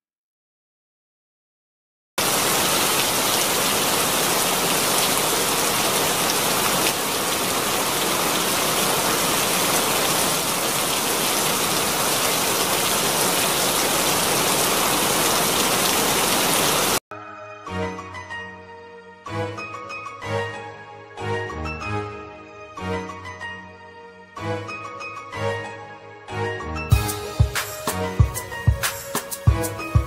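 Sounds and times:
heavy rain pouring: 2.2 - 17.0.

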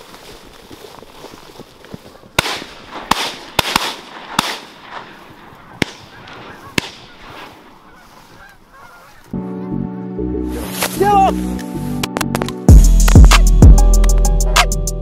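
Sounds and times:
shotgun shots: 2.4 - 7.6
geese honking: 4.9 - 11.3.

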